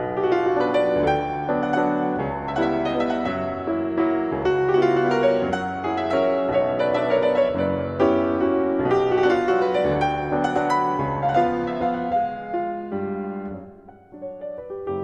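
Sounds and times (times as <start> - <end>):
solo piano waltz: 0.0 - 15.0.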